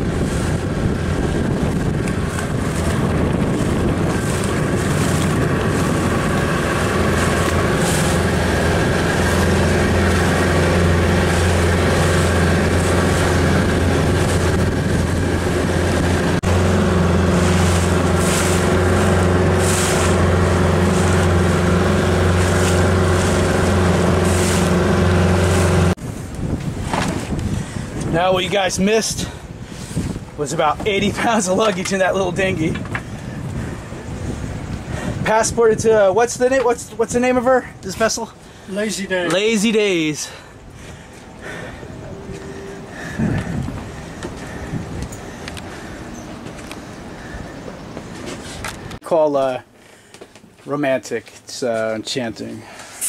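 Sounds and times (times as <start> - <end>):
water rushing: 0.0 - 26.0
outboard motor humming: 0.0 - 28.7, 29.4 - 35.2, 37.7 - 49.0
wind noise: 0.0 - 49.0.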